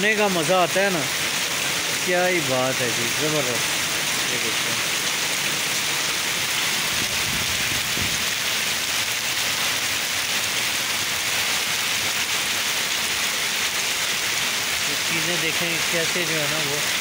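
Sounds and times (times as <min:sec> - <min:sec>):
heavy rain on wet pavement: 0:00.0 - 0:17.0.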